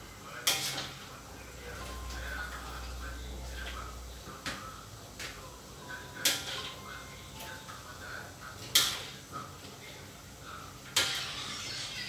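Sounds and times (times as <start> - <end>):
cookware clanking: 10.9 - 11.6.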